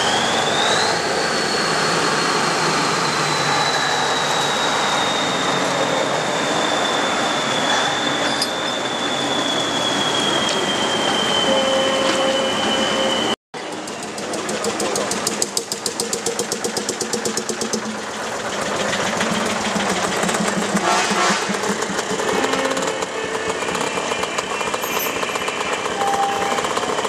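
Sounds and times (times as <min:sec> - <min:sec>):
motorcycle engine putter: 0:13.6 - 0:18.1
two-stroke van engine: 0:13.6 - 0:27.0.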